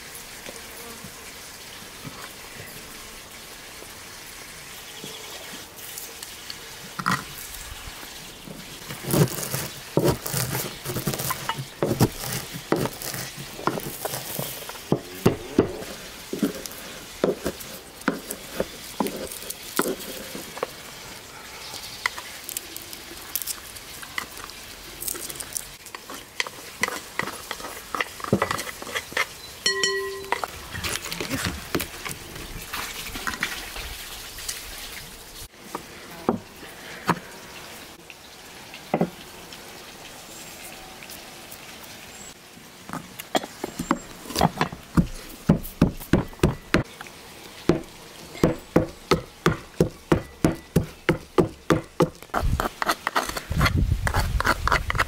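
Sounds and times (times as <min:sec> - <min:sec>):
pestle pounding in wooden mortar: 0:09.0 - 0:16.6, 0:44.4 - 0:46.9, 0:47.7 - 0:55.0
short pitched ring: 0:29.7 - 0:30.4.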